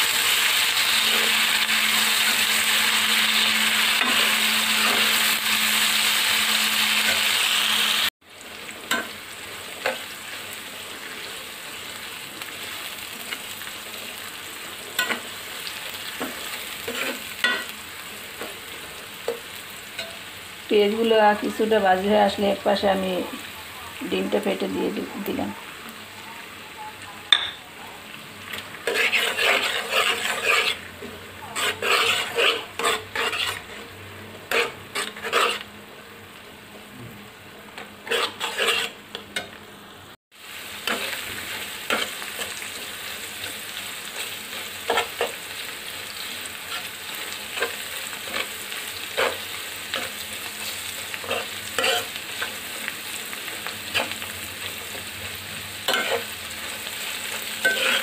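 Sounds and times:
food sizzling in oil: 0.0s - 58.0s
spatula scraping a pan: 0.4s - 7.5s, 14.9s - 17.7s, 28.5s - 35.7s, 37.8s - 39.5s, 40.8s - 55.0s, 55.7s - 58.0s.

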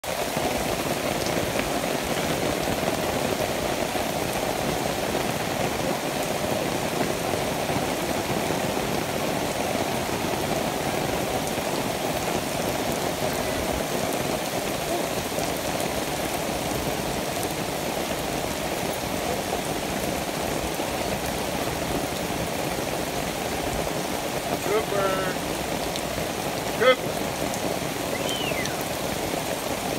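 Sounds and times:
steady rain falling: 0.0s - 29.9s.

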